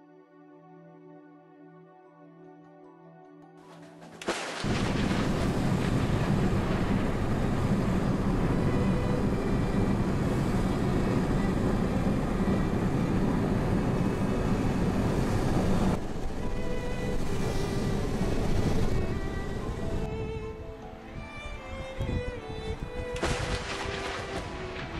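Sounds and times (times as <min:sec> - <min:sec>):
car road and wind noise: 0:04.6 - 0:24.9.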